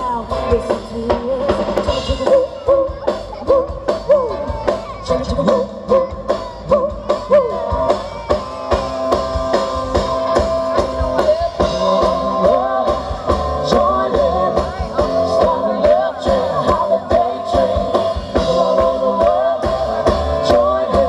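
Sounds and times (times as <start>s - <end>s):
person singing: 0.0s - 9.0s, 10.2s - 21.0s
drum kit beat: 0.0s - 21.0s
guitars: 0.0s - 21.0s.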